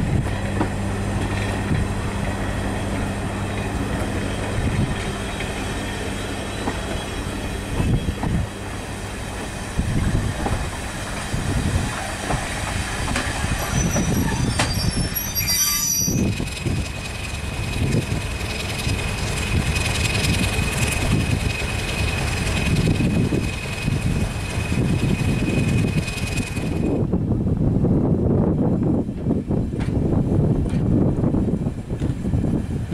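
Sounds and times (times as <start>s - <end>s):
steady high flange squeal: 2.5s - 8.2s, 13.3s - 17.7s
high wheel squeals: 4.2s - 8.3s, 13.3s - 17.3s
train wheels knocking on rail joints: 9.4s - 11.3s, 11.9s - 14.7s.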